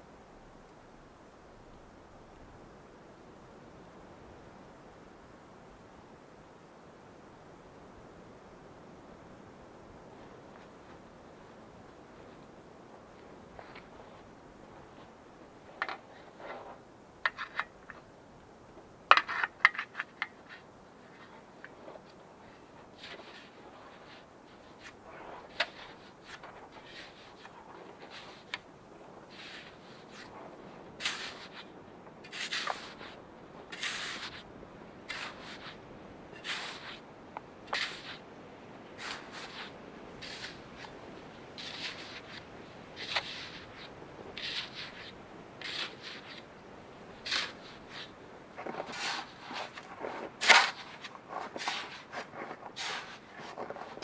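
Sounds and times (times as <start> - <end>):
snow tossed and rustling: 10.1 - 16.9, 20.5 - 37.1, 37.7 - 38.3, 38.9 - 54.0
shovel scraping into snow: 22.9 - 28.6, 29.2 - 34.4, 35.1 - 37.0, 37.7 - 38.2, 39.0 - 40.9, 41.6 - 42.4, 43.0 - 46.4, 47.2 - 54.0.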